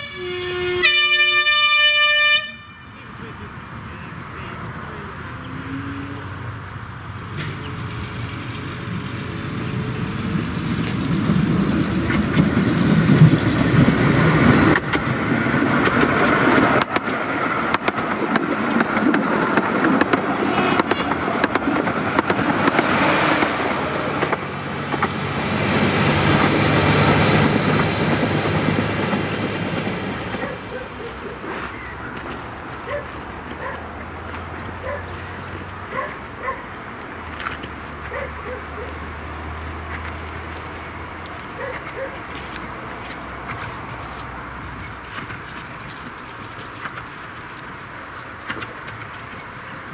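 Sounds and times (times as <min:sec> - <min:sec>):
diesel locomotive engine: 0:00.0 - 0:49.9
train wheels clicking over rail joints: 0:08.9 - 0:34.4.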